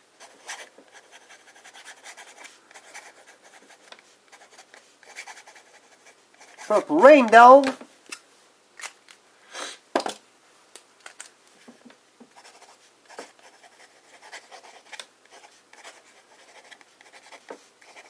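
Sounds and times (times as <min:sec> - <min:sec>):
pen nib scratching on paper: 0:00.2 - 0:06.8, 0:12.3 - 0:18.0.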